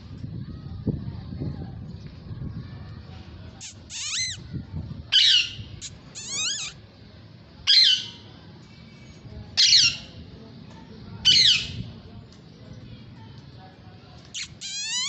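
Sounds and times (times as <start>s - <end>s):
parakeets squawking: 3.6s - 4.4s, 5.2s - 6.8s, 14.4s - 15.0s.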